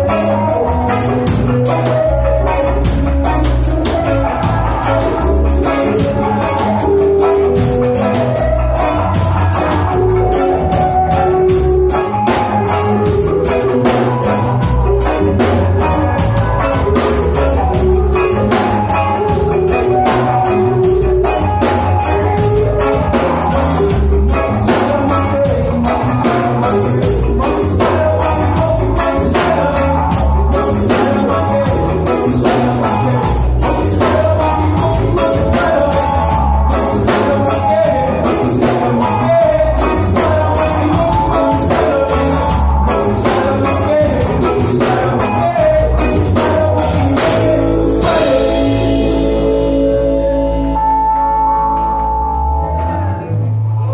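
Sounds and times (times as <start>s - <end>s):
drum kit beat: 0.0s - 52.4s
bass guitar: 0.0s - 53.9s
electric guitars: 0.0s - 53.9s.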